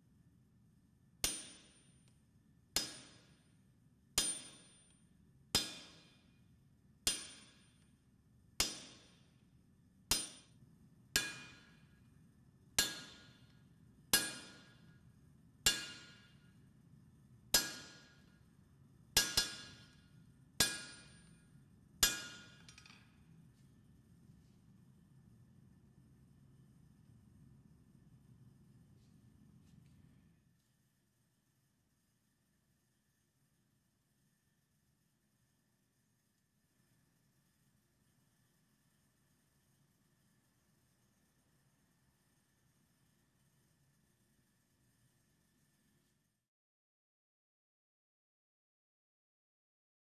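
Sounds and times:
hammer striking steel: 1.2 - 1.9, 2.8 - 3.4, 4.2 - 4.9, 5.6 - 6.2, 7.1 - 7.8, 8.6 - 9.2, 10.1 - 10.5, 11.2 - 11.9, 12.8 - 13.4, 14.1 - 14.9, 15.6 - 16.5, 17.5 - 18.3, 19.2 - 20.0, 20.6 - 21.4, 22.0 - 23.2.

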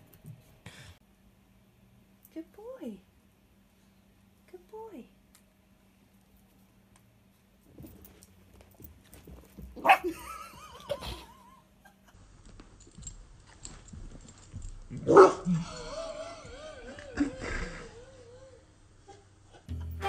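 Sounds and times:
puppy barking: 9.8 - 10.1, 15.0 - 15.5.

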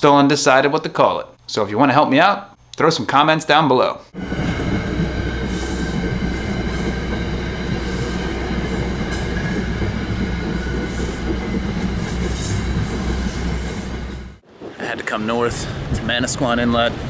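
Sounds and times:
rushing noise: 4.2 - 17.0.

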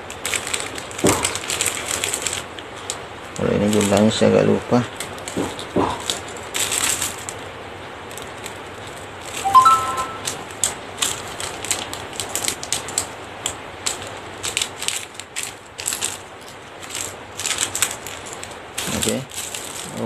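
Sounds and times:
plastic packets crinkling: 0.1 - 4.3, 5.0 - 7.4, 10.6 - 13.2, 13.8 - 20.0.

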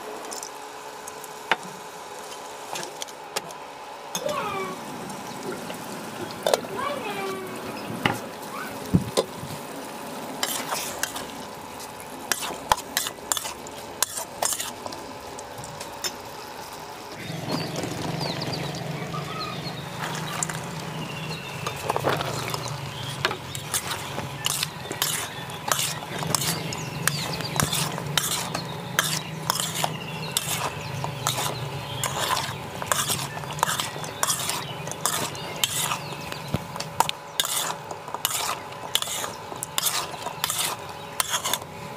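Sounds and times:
food sizzling: 0.0 - 41.9
spatula scraping cooking pot: 10.4 - 11.4, 12.2 - 15.0, 19.6 - 41.8.

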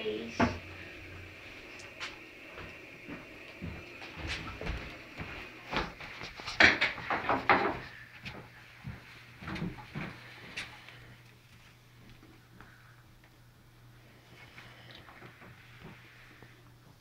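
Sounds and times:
knocks and clatters at metal sink: 6.6 - 7.8.

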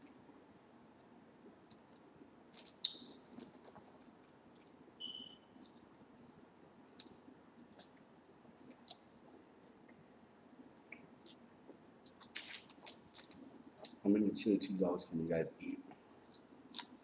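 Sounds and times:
chewing fries: 1.0 - 14.1, 15.6 - 17.0
paper wrappers crinkling: 1.7 - 7.1, 12.1 - 14.0.

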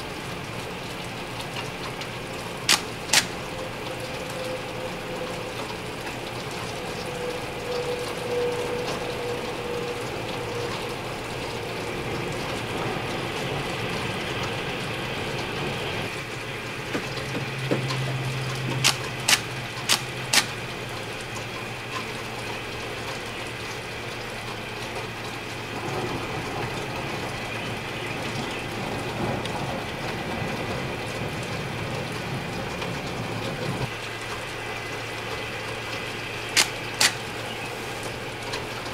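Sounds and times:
steady rushing hiss: 0.0 - 28.2, 28.8 - 38.9
sharp clicks: 2.7 - 3.4, 18.7 - 20.6, 36.5 - 37.2.

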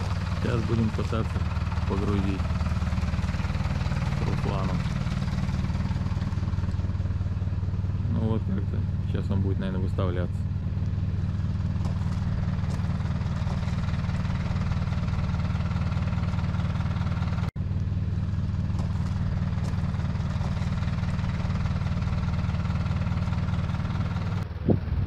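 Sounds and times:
vehicle engine idling: 0.0 - 25.0.

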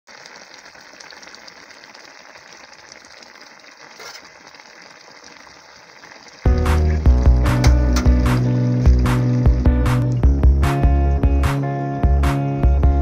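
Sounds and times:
curry sizzling and bubbling: 0.1 - 12.1.

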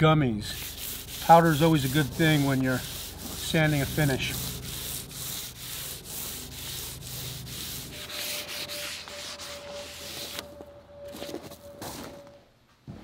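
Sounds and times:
sandpaper rubbing on wood: 0.4 - 10.4.

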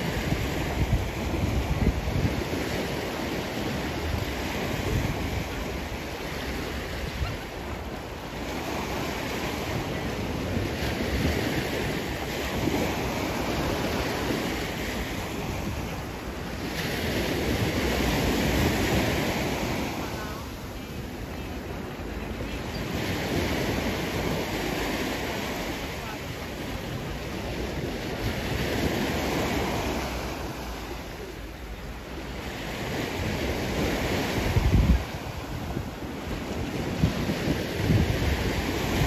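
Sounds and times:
wind rumbling on microphone: 0.0 - 31.1, 32.0 - 39.0
sea waves washing onto beach: 0.0 - 39.0.

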